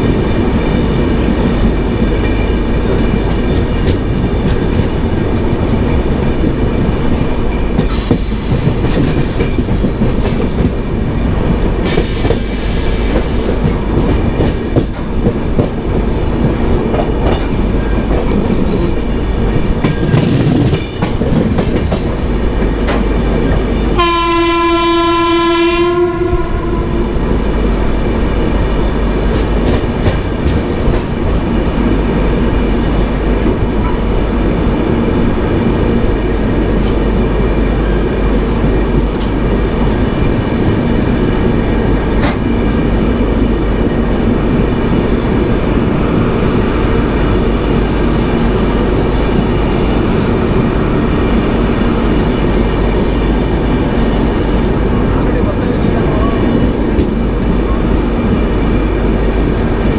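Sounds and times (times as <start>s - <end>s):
train wheels rumbling on track: 0.0s - 59.9s
train horn: 24.0s - 27.2s.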